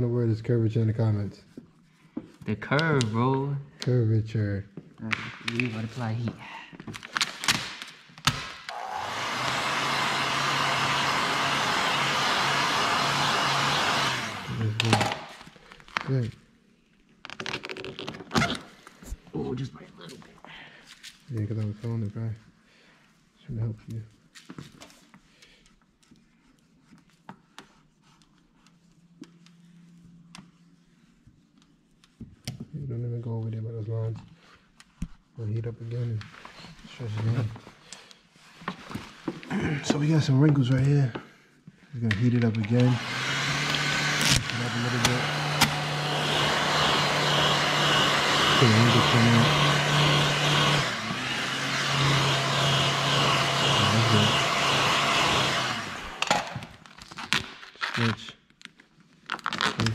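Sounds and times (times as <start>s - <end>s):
heat gun blowing hot air: 8.7s - 15.3s, 42.7s - 56.6s.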